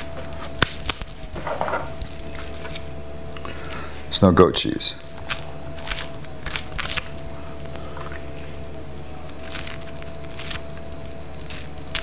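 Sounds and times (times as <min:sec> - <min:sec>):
low hum with held tone: 0:00.0 - 0:12.0
spoon scraping crisp bread: 0:05.1 - 0:12.0.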